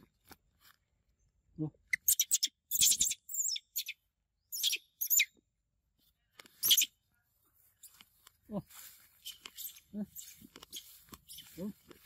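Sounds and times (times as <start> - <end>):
baby monkey squeaking: 1.9 - 5.3, 6.6 - 7.0, 9.2 - 11.6.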